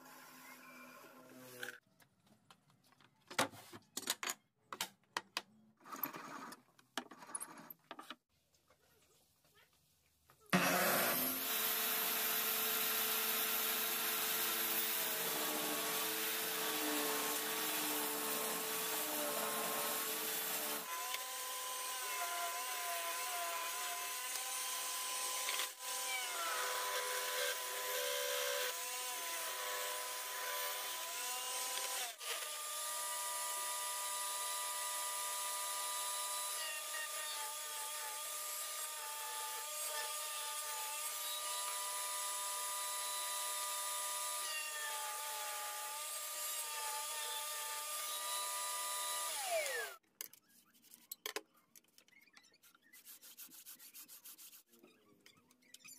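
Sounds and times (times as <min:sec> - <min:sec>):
power tool motor whine: 0:10.6 - 0:22.7, 0:48.0 - 0:50.0.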